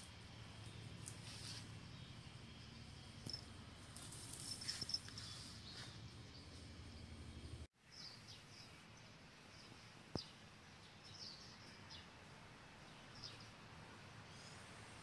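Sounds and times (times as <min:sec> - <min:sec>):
low background hum: 0:00.0 - 0:07.7.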